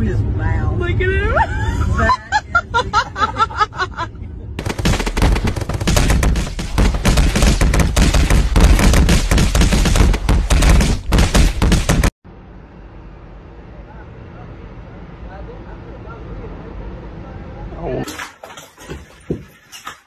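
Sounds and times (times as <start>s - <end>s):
barrage of sharp cracks: 4.6s - 12.2s.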